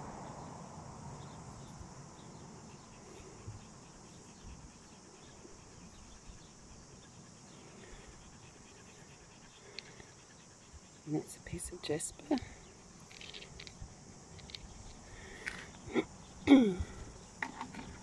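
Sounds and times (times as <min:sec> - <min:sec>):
high-pitched insect chorus: 0:00.0 - 0:18.0
small clicks: 0:13.1 - 0:15.8.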